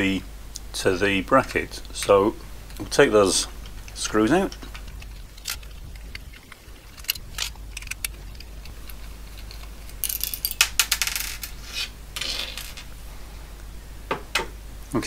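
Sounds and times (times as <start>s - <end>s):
rattling metal clicks: 3.6s - 10.8s.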